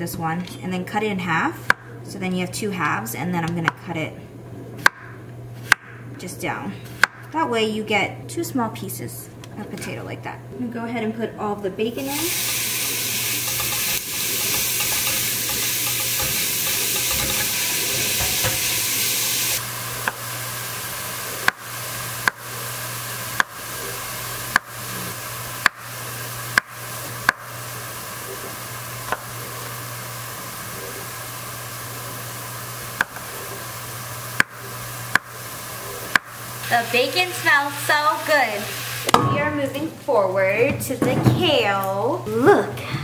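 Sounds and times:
bacon sizzling in a pot: 12.0s - 39.2s
knife knocking on cutting board: 13.5s - 18.8s.

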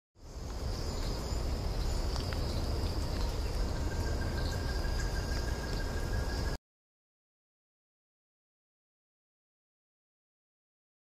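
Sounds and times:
insects trilling: 0.2s - 6.6s
low insect trill: 0.2s - 6.6s
low wind rumble: 0.2s - 6.6s.

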